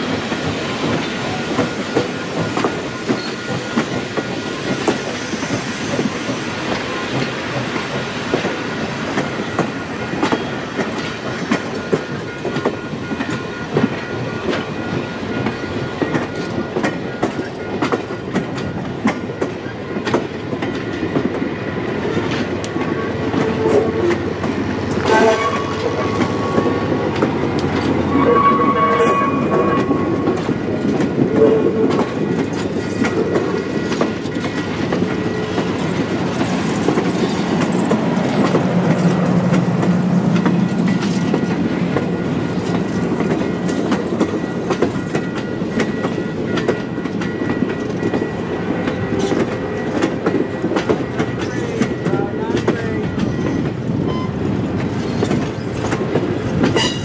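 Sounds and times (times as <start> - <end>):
train wheels clicking over rail joints: 0.0 - 28.2, 29.4 - 57.0
short ringing tones: 28.0 - 30.3.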